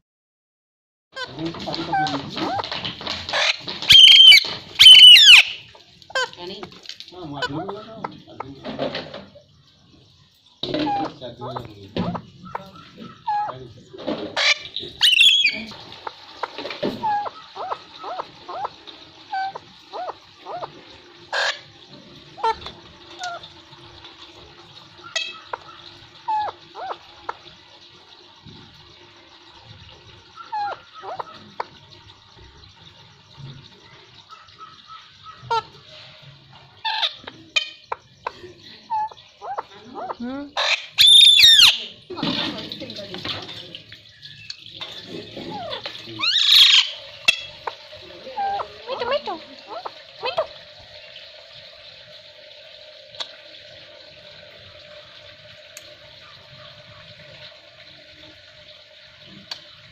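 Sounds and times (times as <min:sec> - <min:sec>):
parakeets screeching and squawking: 0:01.2 - 0:06.5, 0:07.2 - 0:09.2, 0:10.6 - 0:23.5, 0:25.0 - 0:27.4, 0:30.3 - 0:31.6, 0:36.8 - 0:42.0, 0:44.2 - 0:50.6
parakeet harsh squawk: 0:03.3 - 0:06.4, 0:14.4 - 0:15.7, 0:21.3 - 0:21.7, 0:38.9 - 0:41.9, 0:45.5 - 0:47.8
whistled bird notes: 0:03.9 - 0:05.7, 0:15.0 - 0:15.7, 0:37.0 - 0:41.9.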